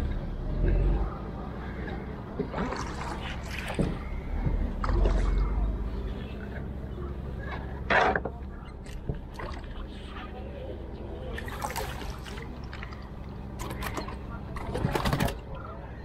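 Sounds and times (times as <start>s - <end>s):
low steady rumble: 0.0s - 16.0s
water lapping against canoe: 1.7s - 8.1s, 8.8s - 14.3s
fishing line hauled in: 1.9s - 6.8s, 8.5s - 15.5s.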